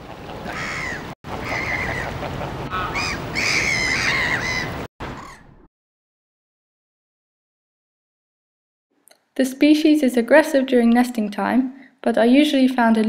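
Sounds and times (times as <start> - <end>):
geese honking: 0.0 - 5.4.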